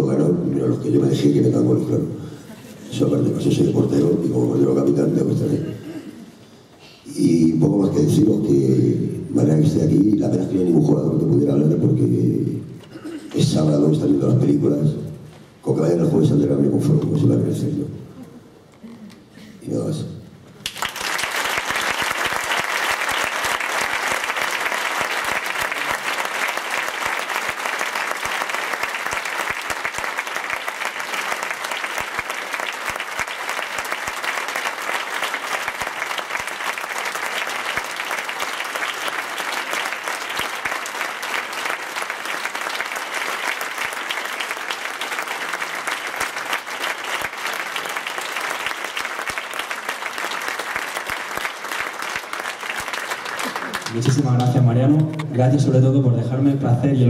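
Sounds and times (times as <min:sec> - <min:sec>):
audience applause: 0:20.6 - 0:55.3.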